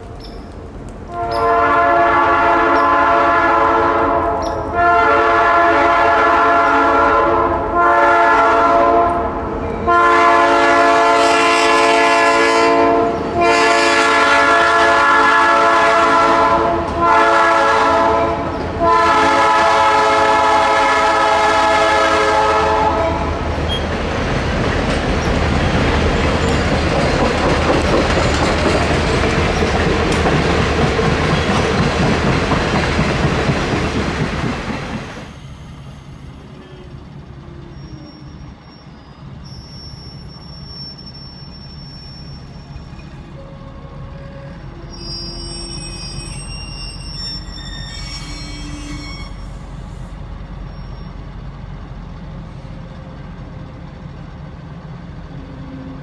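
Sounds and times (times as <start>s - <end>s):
locomotive air horn blasts: 1.1s - 23.5s, 43.4s - 49.7s
train wheels clickety-clack: 2.6s - 3.2s, 4.2s - 4.9s, 23.4s - 38.5s.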